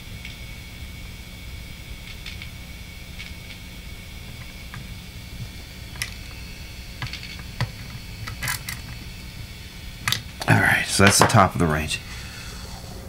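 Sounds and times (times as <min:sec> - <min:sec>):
steady low hum: 0:00.0 - 0:13.0
small clicks and ticks: 0:01.9 - 0:10.5.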